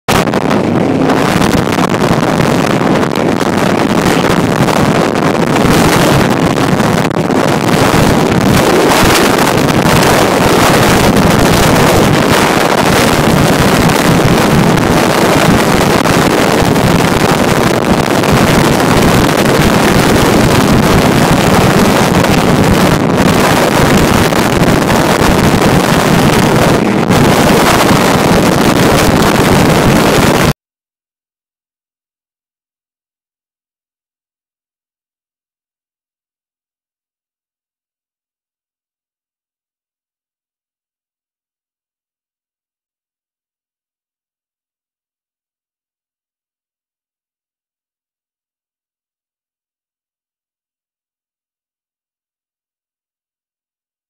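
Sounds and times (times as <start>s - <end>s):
powerboat engine and hull noise: 0.1s - 30.5s
wind buffeting microphone: 0.1s - 30.6s.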